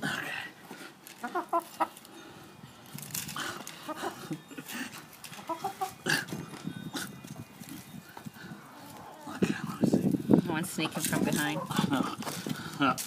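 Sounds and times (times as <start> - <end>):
hens clucking: 1.1 - 2.1, 3.6 - 9.7, 10.6 - 12.8
hand tool digging soil: 10.8 - 13.0.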